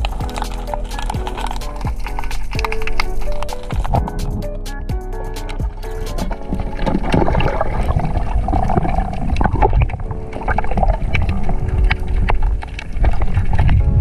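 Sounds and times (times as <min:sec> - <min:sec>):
sharp underwater clicks: 0:00.0 - 0:04.5
underwater churning rumble: 0:05.5 - 0:14.0.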